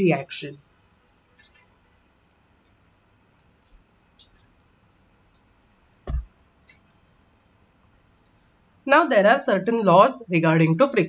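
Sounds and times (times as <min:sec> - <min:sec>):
computer mouse clicks: 0:01.4 - 0:01.7, 0:03.4 - 0:04.5, 0:06.1 - 0:06.9.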